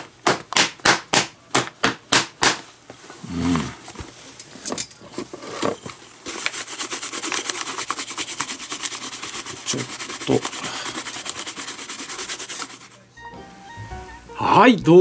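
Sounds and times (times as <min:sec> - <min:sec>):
hand rubbing leather glove: 0:06.2 - 0:13.0.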